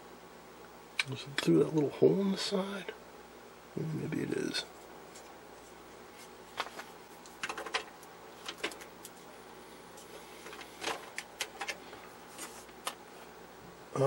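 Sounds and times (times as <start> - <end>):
faint steady hum: 0.0 - 14.0
light clicks and scrapes of handling: 9.9 - 13.3.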